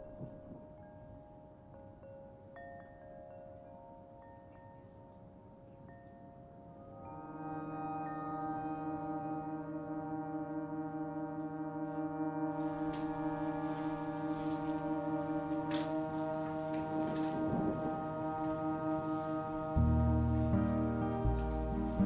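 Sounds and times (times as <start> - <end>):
droning chord: 6.7 - 22.0.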